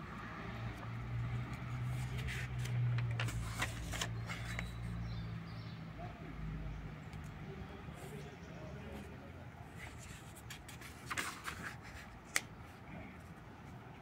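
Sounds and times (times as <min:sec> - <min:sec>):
paper page turning: 0:01.5 - 0:04.9, 0:09.8 - 0:12.4.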